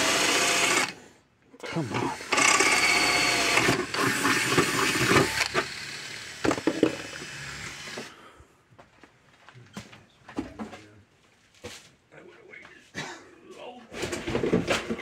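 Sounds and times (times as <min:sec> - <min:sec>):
cordless drill on sheet metal: 0:00.0 - 0:01.0, 0:01.7 - 0:08.2.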